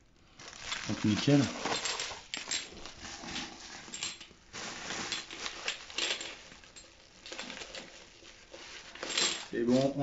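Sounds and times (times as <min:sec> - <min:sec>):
rustling: 0:00.2 - 0:10.0
metal cartridges clinking: 0:00.7 - 0:04.4, 0:05.1 - 0:08.0, 0:08.9 - 0:10.0.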